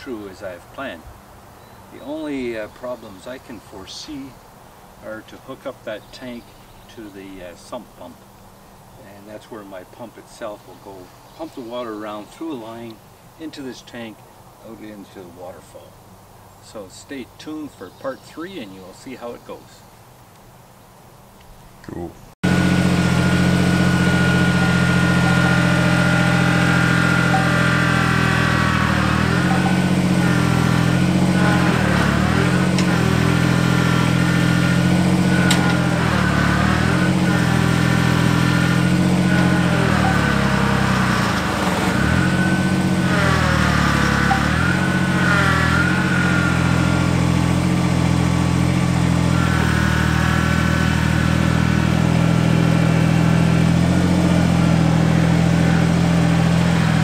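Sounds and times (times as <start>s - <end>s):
whine rising and falling: 22.4s - 53.2s
tractor diesel engine running: 22.4s - 57.0s.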